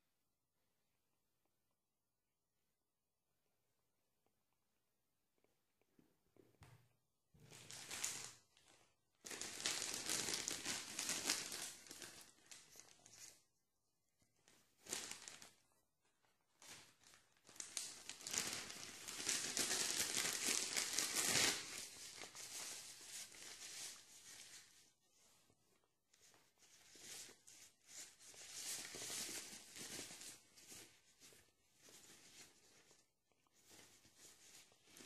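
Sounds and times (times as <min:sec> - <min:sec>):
tissue paper crumpling: 0:07.4 - 0:13.5, 0:14.4 - 0:35.0.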